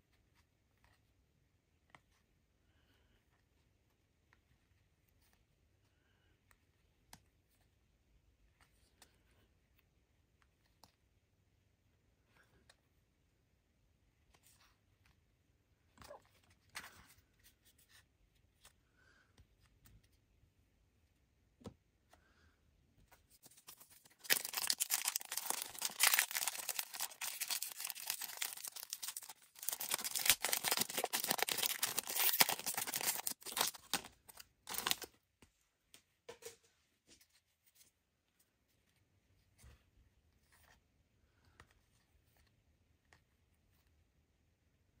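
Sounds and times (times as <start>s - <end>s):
soft clicks of cards handled: 3.2s - 7.8s, 8.4s - 11.2s
foil pack tearing and crinkling: 23.6s - 35.1s.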